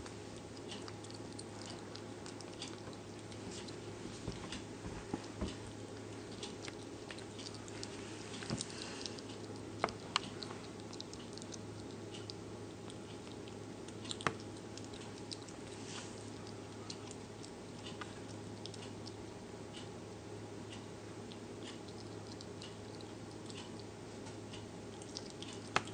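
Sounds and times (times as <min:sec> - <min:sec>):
animal chewing food: 0:00.0 - 0:20.0, 0:20.7 - 0:25.9
steady low hum: 0:00.0 - 0:25.9.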